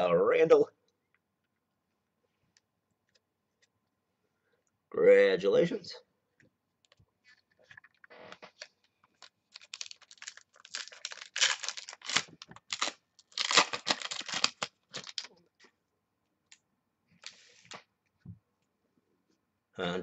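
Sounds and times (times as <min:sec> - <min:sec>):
foil pack tearing and crinkling: 0:08.4 - 0:15.3.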